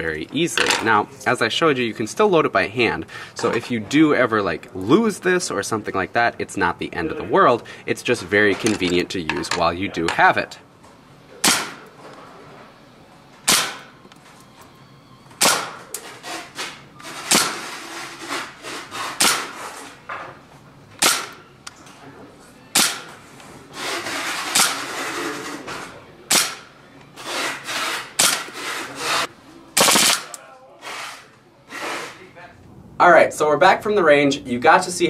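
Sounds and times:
airsoft pistol shots: 11.4s - 11.8s, 13.4s - 13.9s, 15.4s - 15.9s, 17.3s - 17.7s, 19.2s - 19.6s, 21.0s - 21.5s, 22.7s - 23.2s, 24.5s - 24.9s, 26.3s - 26.7s, 28.2s - 28.5s, 29.8s - 30.4s
metal slide cycling: 23.8s - 25.6s.

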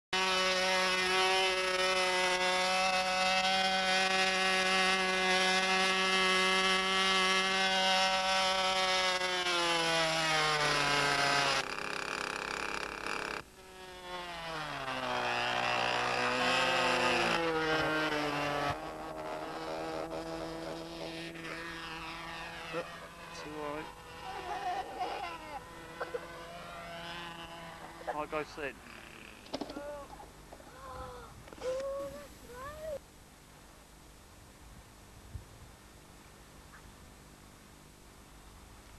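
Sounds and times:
model plane engine revving: 0.2s - 30.2s.

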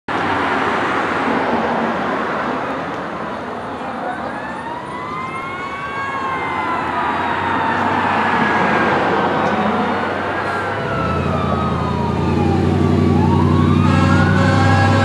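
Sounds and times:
fire truck siren wailing: 4.0s - 15.0s.

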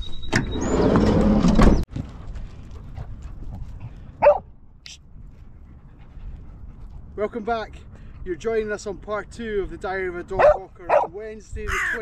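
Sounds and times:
outdoor background: 0.0s - 12.0s
dog bark: 4.2s - 4.4s, 10.4s - 11.1s.

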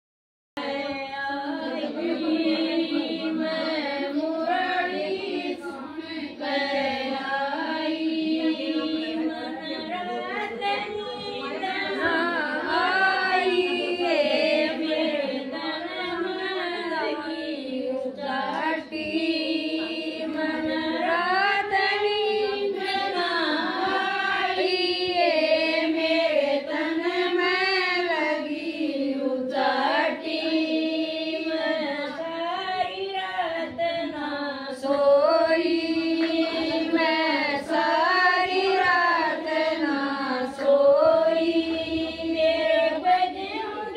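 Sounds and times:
woman singing devotional song: 0.6s - 43.9s.

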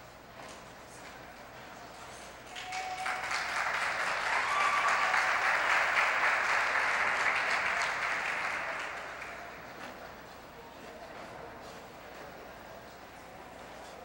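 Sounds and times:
audience applauding: 2.5s - 9.8s.

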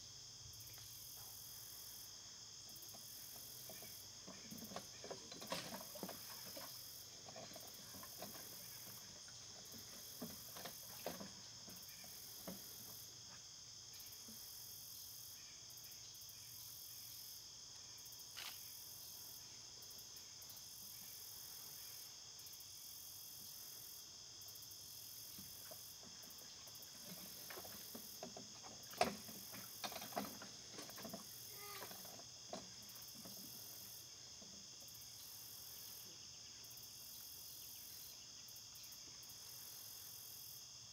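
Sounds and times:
crickets chirping: 0.0s - 40.9s
rustles and knocks: 2.7s - 13.5s, 25.2s - 35.2s.

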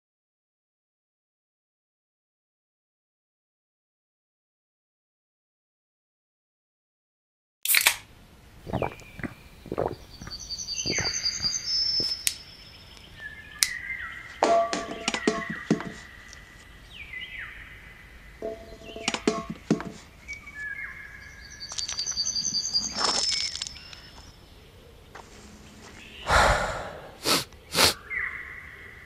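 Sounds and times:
birds chirping: 8.6s - 29.0s.

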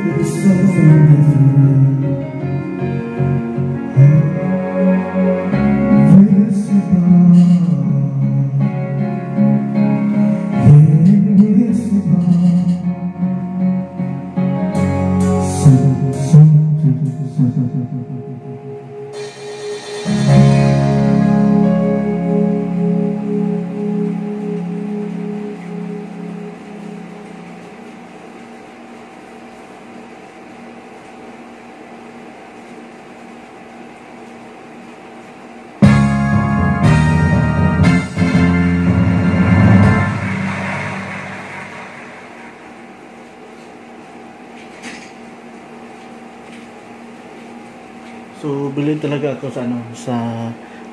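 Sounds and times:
person singing along: 0.0s - 9.2s, 10.4s - 13.6s, 15.2s - 19.4s
guitar-backed ballad: 0.0s - 28.0s
amplifier electrical hum and hiss: 0.0s - 50.9s.

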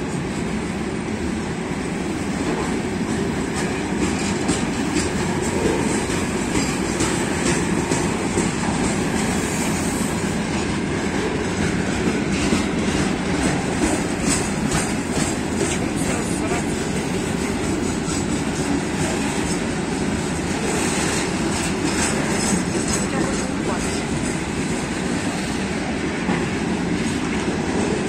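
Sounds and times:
freight train wheels rumbling on rail: 0.0s - 28.0s
wheels clicking and knocking: 3.1s - 9.4s, 10.5s - 16.4s.

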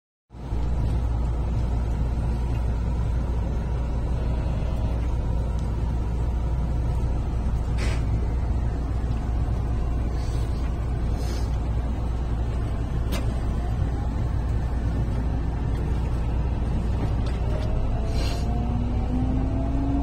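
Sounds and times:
train running rumble: 0.3s - 20.0s
short hisses: 7.8s - 8.1s.

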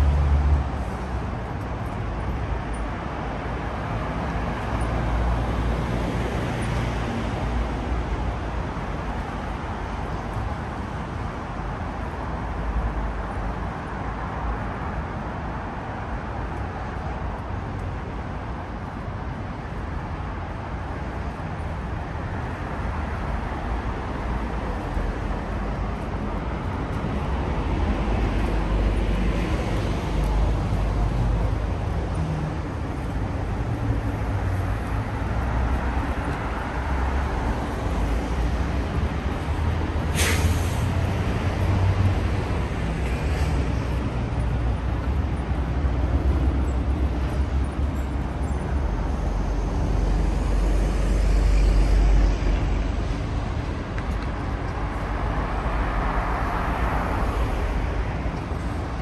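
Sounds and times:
vehicle engines passing: 0.0s - 59.0s
sharp hiss: 40.1s - 41.0s.

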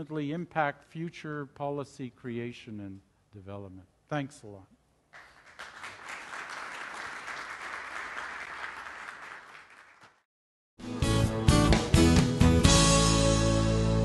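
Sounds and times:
audience applauding: 5.2s - 10.2s
loud music: 10.8s - 14.0s.

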